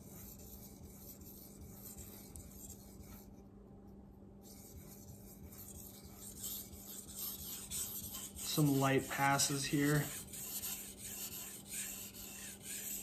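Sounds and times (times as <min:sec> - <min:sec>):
steady low hum: 0:00.0 - 0:13.0
knife scraping on whetstone: 0:05.5 - 0:13.0.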